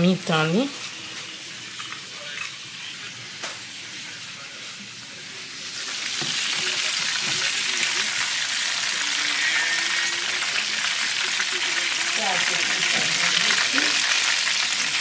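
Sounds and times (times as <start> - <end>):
chicken frying in oil: 0.0 - 15.0.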